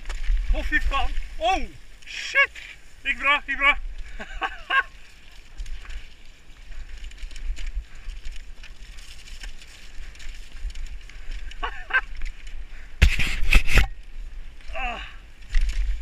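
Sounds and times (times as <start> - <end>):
bike tyres rolling over dirt: 0.0 - 16.0
wind rumble on microphone: 3.8 - 16.0
person shouting: 14.7 - 15.2.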